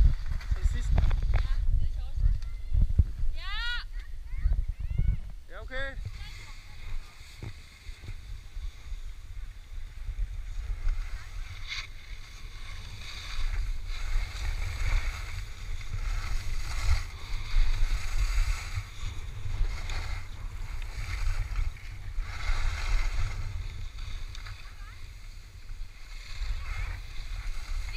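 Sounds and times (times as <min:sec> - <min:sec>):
wind buffeting microphone: 0:00.0 - 0:27.9
skis hissing over snow: 0:05.8 - 0:27.9.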